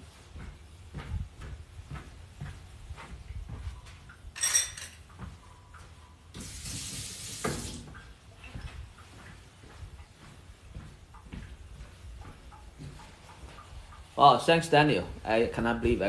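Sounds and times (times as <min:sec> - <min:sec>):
metal spoon clinking: 0:04.4 - 0:05.0
kitchen tap running: 0:06.4 - 0:08.0.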